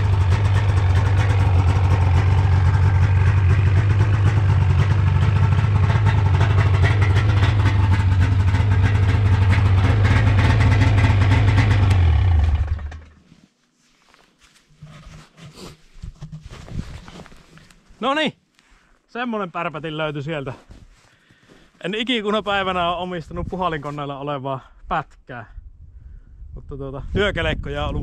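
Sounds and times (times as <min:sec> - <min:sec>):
snowmobile engine idling: 0:00.0 - 0:13.2
faint clicks and rustles: 0:13.0 - 0:19.0.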